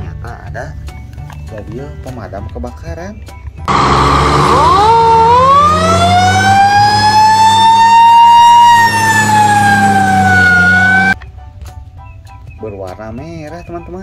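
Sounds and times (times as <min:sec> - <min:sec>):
fire engine siren wailing: 0:03.7 - 0:11.2.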